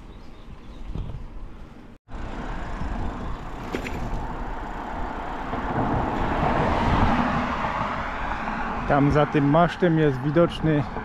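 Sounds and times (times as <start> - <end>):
wind rumbling on microphone: 0.0 - 1.6, 2.6 - 9.4
road traffic noise: 0.0 - 11.0
vehicle passing: 2.1 - 11.0.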